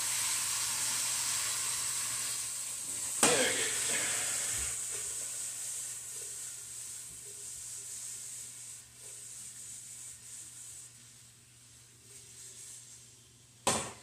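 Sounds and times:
meat sizzling in a frying pan: 0.0s - 7.2s.

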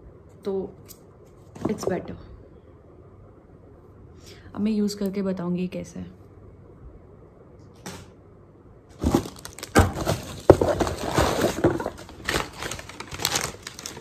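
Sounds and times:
packing paper crinkling: 9.0s - 14.0s.

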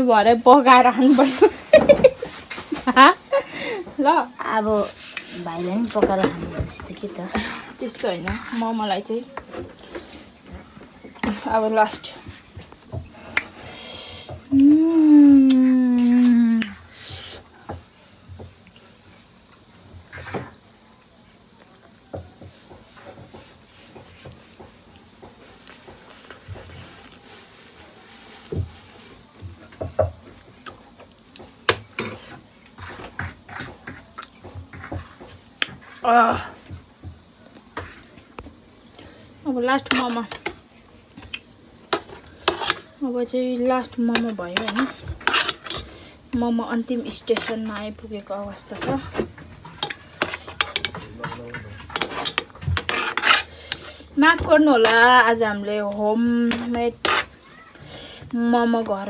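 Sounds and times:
spoon scraping metal steamer tray: 43.9s - 48.0s, 48.7s - 55.1s, 56.4s - 57.5s.

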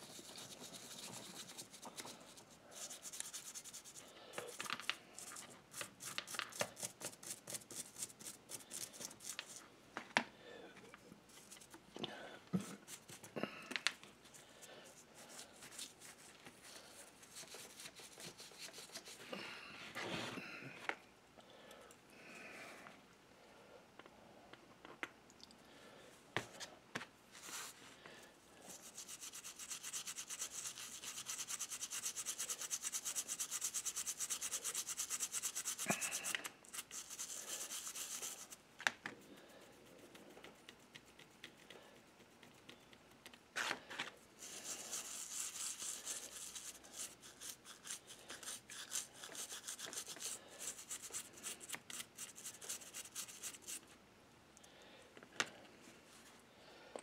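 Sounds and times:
toothbrush scrubbing metal: 0.0s - 4.0s, 17.0s - 19.2s, 28.7s - 38.6s, 44.4s - 53.8s.

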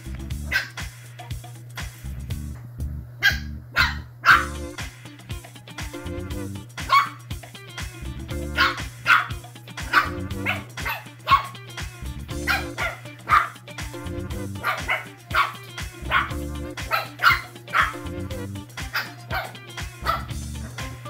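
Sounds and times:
background music with bass: 0.0s - 21.0s
puppies barking and yipping: 3.2s - 4.8s, 6.8s - 7.2s, 8.3s - 11.6s, 12.3s - 13.9s, 14.5s - 20.4s.

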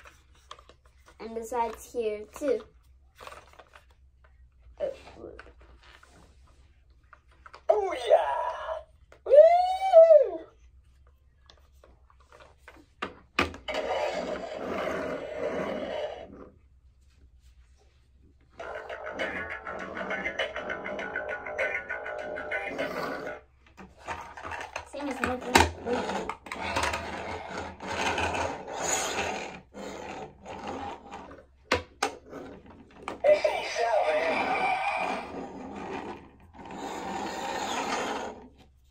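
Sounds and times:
toy car wheels rolling on wood: 13.6s - 16.5s, 18.6s - 31.5s, 32.2s - 38.6s.

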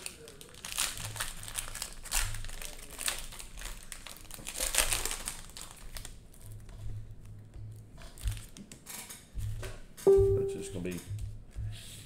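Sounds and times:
cellophane wrapper crinkling: 0.0s - 6.7s.

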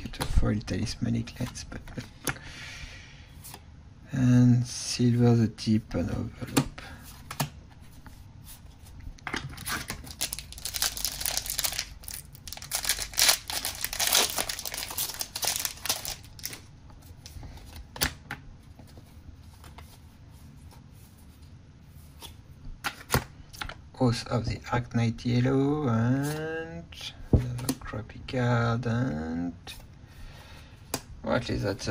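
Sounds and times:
card handling: 9.2s - 20.0s
wrapper tearing and crinkling: 9.6s - 16.7s.

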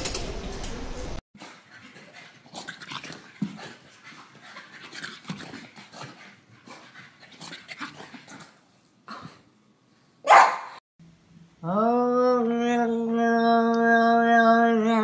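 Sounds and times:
dog panting: 1.4s - 8.6s.

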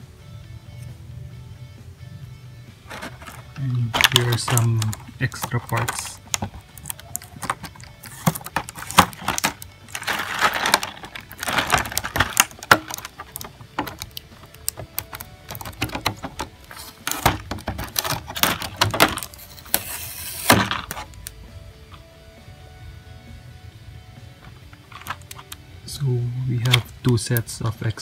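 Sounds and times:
plastic blister tray crinkling: 2.9s - 21.2s, 24.8s - 25.6s.

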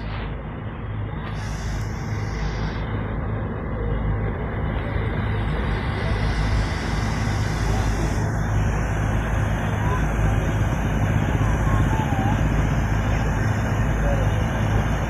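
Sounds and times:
low bass hum from loudspeakers: 0.0s - 15.0s.

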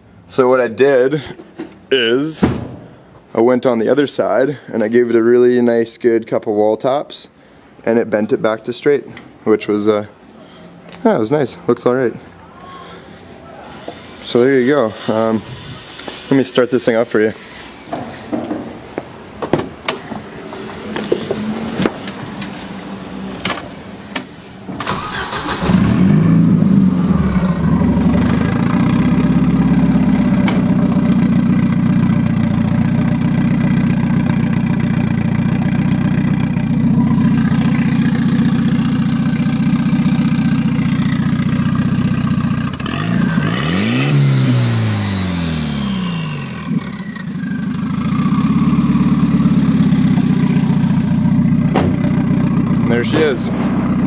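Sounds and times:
car engine starting: 21.0s - 54.0s
engine revving: 24.9s - 32.1s, 32.9s - 54.0s
car engine idling: 24.9s - 54.0s.

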